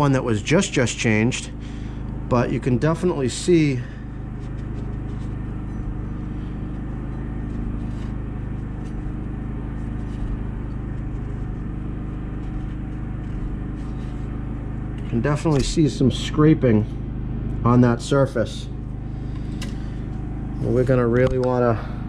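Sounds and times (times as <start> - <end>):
low machine hum: 0.0 - 22.0
towel rubbing on metal: 4.0 - 15.6.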